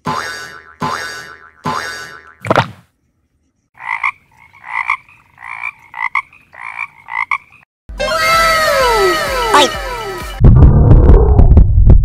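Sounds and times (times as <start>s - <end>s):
frog croaking: 3.8s - 7.7s.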